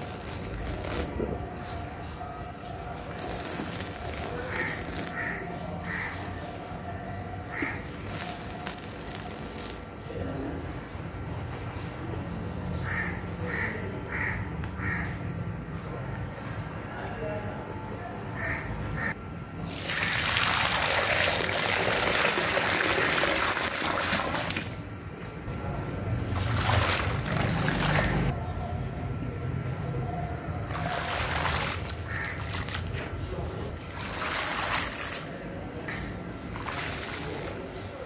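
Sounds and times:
water pouring onto soil: 0:19.6 - 0:24.8, 0:26.3 - 0:28.2, 0:30.6 - 0:33.0, 0:33.8 - 0:35.3, 0:36.5 - 0:37.7.

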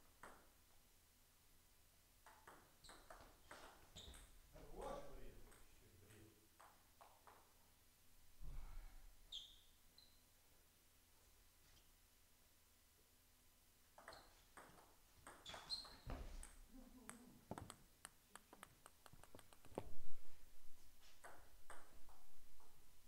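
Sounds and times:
ball bouncing away: 0:14.0 - 0:17.9
table tennis ball clicking: 0:16.4 - 0:19.7.

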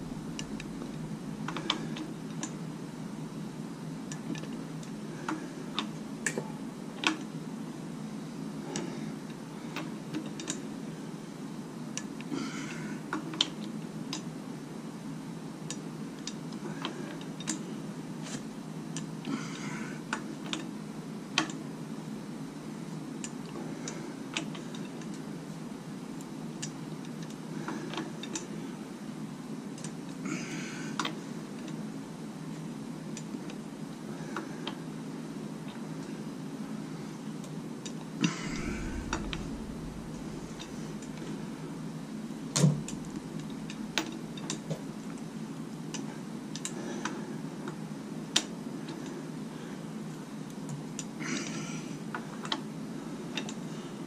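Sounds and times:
steady low hum: 0:00.0 - 0:21.3, 0:35.9 - 0:54.0.

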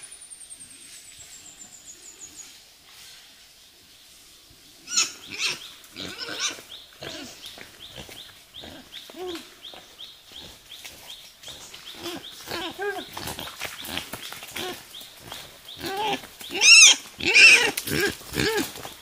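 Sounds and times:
pig grunting and squealing: 0:04.9 - 0:09.5, 0:11.9 - 0:18.9.

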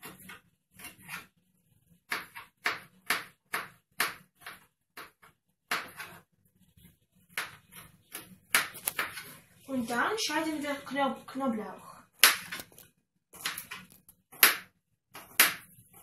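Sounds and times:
knife chopping on plastic board: 0:00.0 - 0:01.3, 0:02.1 - 0:06.2, 0:07.3 - 0:09.2, 0:12.2 - 0:16.0.

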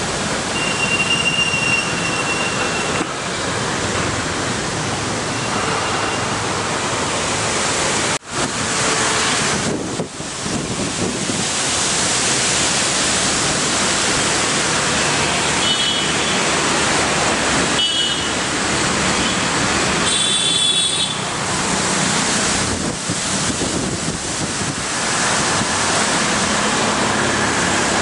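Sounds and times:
storm wind gusting through trees: 0:06.3 - 0:15.6, 0:21.2 - 0:28.0
wind buffeting microphone: 0:09.4 - 0:11.6, 0:22.5 - 0:25.9.

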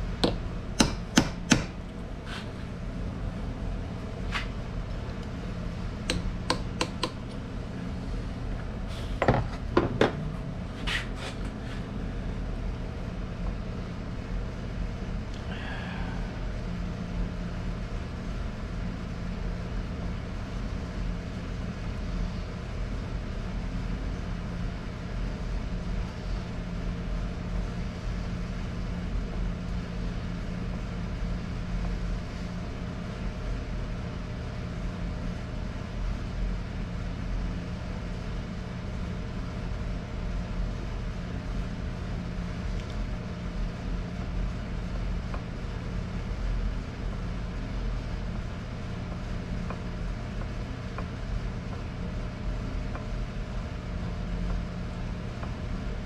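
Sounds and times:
low mechanical hum: 0:00.0 - 0:56.0.

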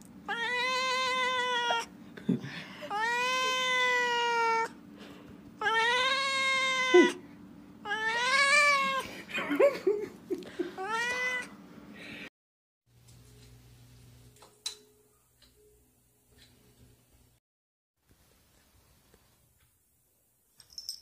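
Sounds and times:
cat meowing: 0:00.3 - 0:01.9, 0:02.9 - 0:04.8, 0:05.6 - 0:07.2, 0:07.8 - 0:09.0, 0:10.8 - 0:11.5.

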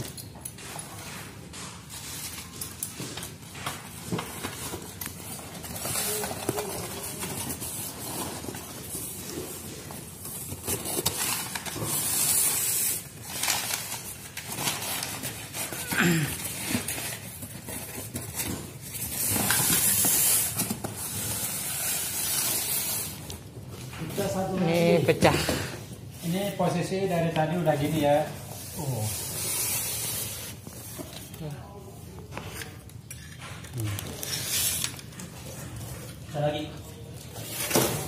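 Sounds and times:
bubble wrap crinkling: 0:01.2 - 0:24.6, 0:25.9 - 0:38.0
paper crumpling: 0:01.9 - 0:24.3.

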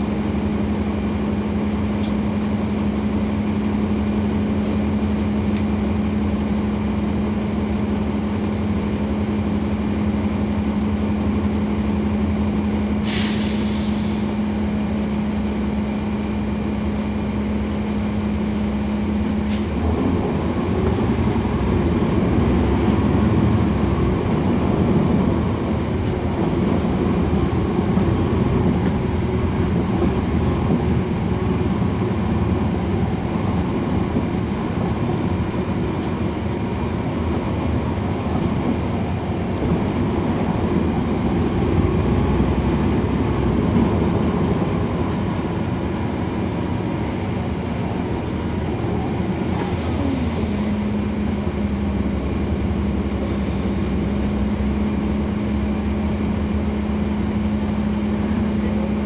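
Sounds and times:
bus engine accelerating: 0:00.0 - 0:59.0
bus engine hum: 0:00.0 - 0:59.0
air brake hiss: 0:13.0 - 0:14.4, 0:53.0 - 0:54.0.

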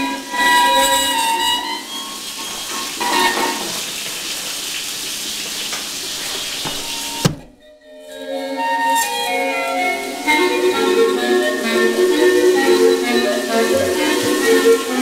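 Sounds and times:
music from record player: 0:07.7 - 0:15.0.

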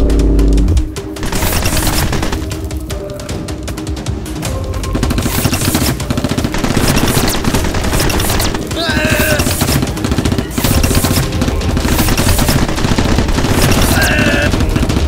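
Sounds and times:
automatic gunfire: 0:01.2 - 0:02.5, 0:05.1 - 0:15.0.

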